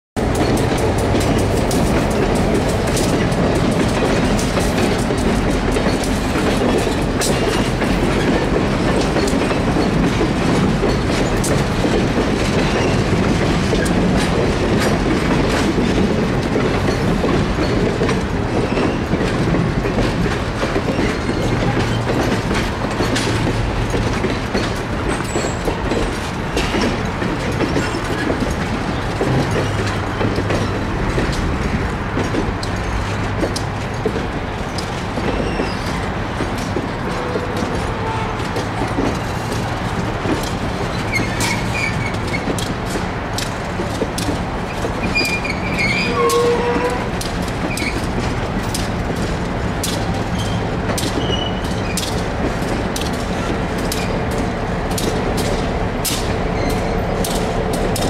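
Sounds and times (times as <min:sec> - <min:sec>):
train wheels rumbling on rail: 0:00.2 - 0:58.0.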